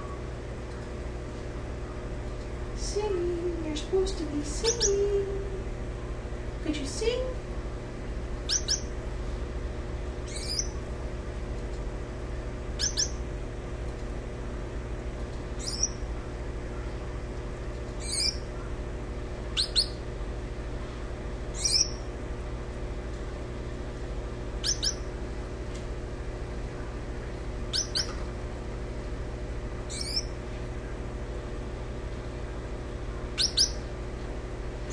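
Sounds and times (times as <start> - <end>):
finches chirping: 4.5 - 5.0, 8.4 - 8.9, 10.3 - 10.8, 12.8 - 13.2, 15.6 - 16.1, 18.0 - 18.8, 19.5 - 20.0, 21.5 - 22.1, 24.6 - 25.1, 27.7 - 28.2, 29.9 - 30.4, 33.3 - 33.8.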